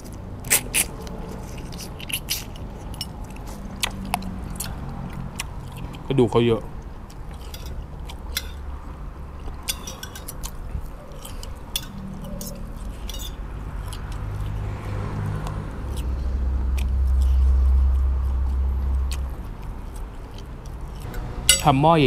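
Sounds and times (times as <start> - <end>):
person chewing: 0.0 - 6.1, 6.7 - 21.2
cutlery clicking on plate: 9.6 - 10.6
low steady hum: 16.8 - 22.0.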